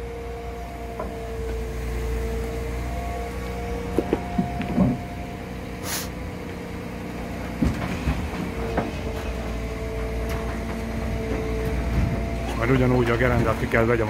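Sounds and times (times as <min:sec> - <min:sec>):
loader engine rumbling and whining: 0:00.0 - 0:14.0
metal clanks and knocks: 0:03.9 - 0:05.2, 0:07.5 - 0:13.9
short hiss: 0:05.8 - 0:06.2.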